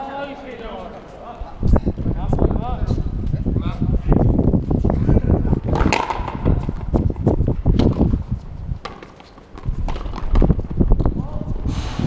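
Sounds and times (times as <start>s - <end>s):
ball hitting rackets and wall: 5.6s - 11.2s.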